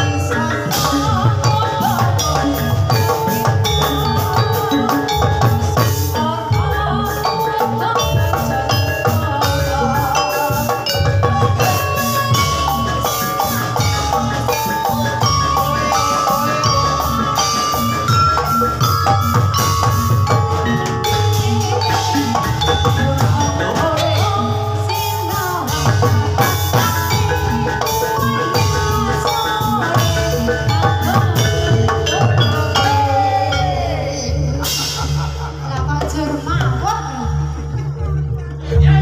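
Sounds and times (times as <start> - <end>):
gamelan music: 0.0 - 39.0.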